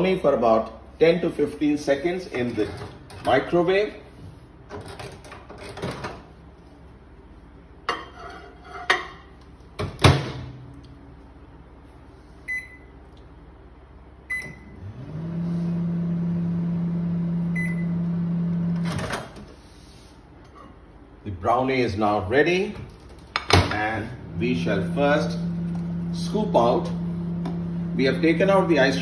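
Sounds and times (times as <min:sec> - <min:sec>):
microwave oven humming: 0:09.2 - 0:19.6, 0:22.9 - 0:29.0.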